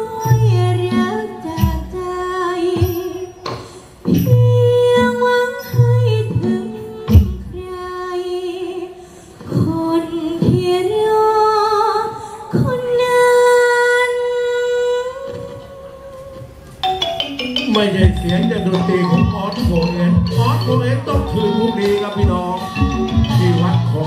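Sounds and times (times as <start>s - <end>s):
sharp percussion hits: 16.8s - 24.0s.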